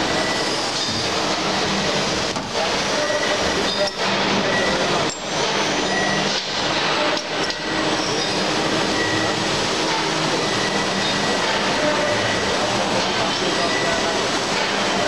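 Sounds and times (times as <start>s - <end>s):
machine noise: 0.0s - 15.0s.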